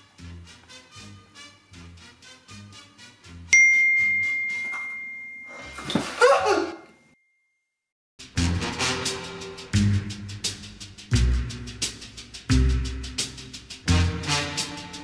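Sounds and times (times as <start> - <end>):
background music with steady beat: 0.0 - 5.4, 8.2 - 15.0
phone message alert ding: 3.6 - 5.9.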